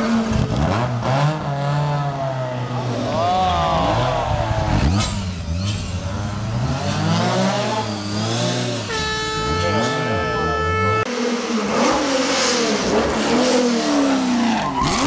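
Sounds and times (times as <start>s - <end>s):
rally car passing close: 0.0s - 8.9s
rally car engines revving: 0.0s - 15.0s.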